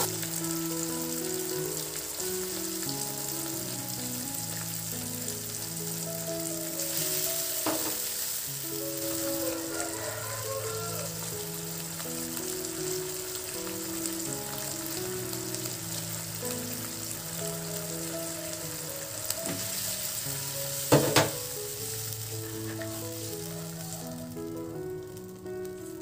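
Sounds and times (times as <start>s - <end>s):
food sizzling in hot oil: 0.0s - 26.0s.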